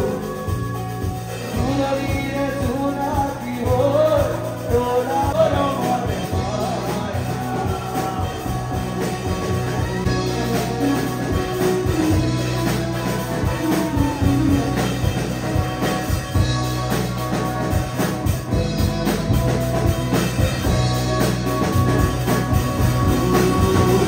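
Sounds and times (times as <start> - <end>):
beat and bass: 0.0 - 24.0
electric guitar: 0.0 - 24.0
keyboard: 0.0 - 24.0
man singing into microphone: 1.4 - 9.6, 23.0 - 24.0.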